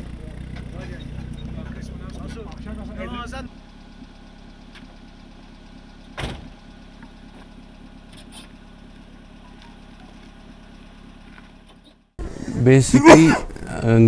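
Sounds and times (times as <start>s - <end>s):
engine idling: 0.0s - 12.6s
car door slam: 6.2s - 6.5s.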